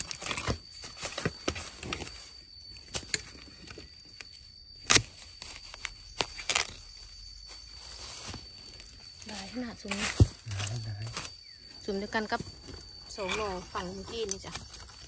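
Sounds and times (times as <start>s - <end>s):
spade chopping bamboo: 4.8s - 6.8s.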